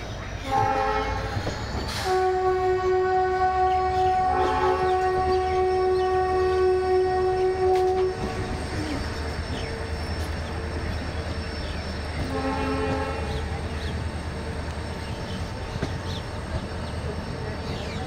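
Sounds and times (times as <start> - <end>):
trains running on tracks: 0.0 - 18.0
locomotive horn: 0.4 - 10.9, 12.0 - 14.0.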